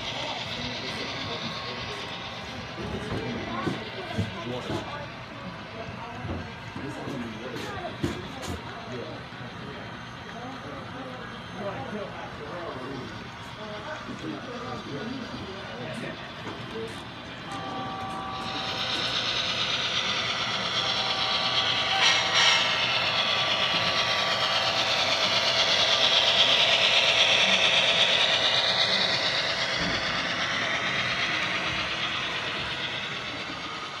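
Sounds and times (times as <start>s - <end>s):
model train motor whine: 0.0s - 34.0s.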